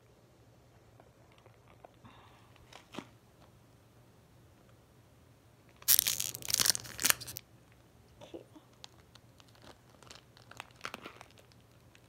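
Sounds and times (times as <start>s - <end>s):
foil wrapper ripping: 5.8s - 7.4s, 8.8s - 12.0s
wrapper crinkling: 5.8s - 7.4s, 8.7s - 12.0s.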